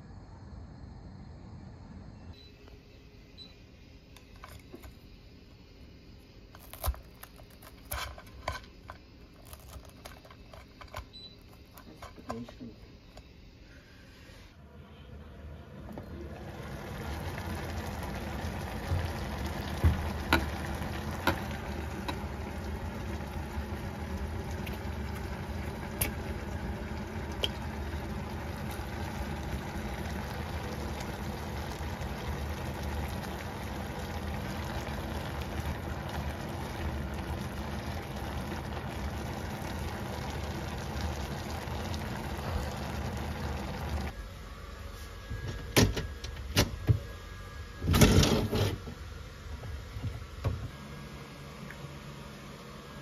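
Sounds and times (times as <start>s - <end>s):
low hum: 0.0s - 46.4s
pot simmering hiss: 4.3s - 45.4s.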